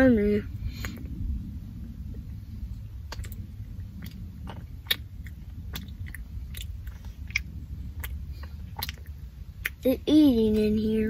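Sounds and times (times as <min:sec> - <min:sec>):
low steady rumble: 0:00.0 - 0:11.0
crisp chewing crunches: 0:03.0 - 0:09.8.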